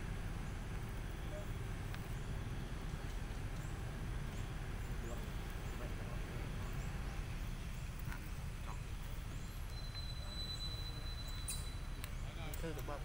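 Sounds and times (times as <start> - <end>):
faint short chirps: 9.6 - 12.0
thin high whistle: 9.7 - 12.0.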